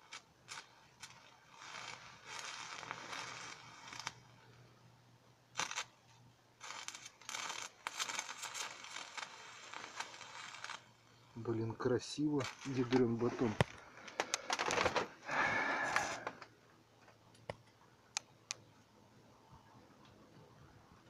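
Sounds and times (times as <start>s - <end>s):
welding arc crackling: 0.0s - 4.6s, 5.5s - 14.5s.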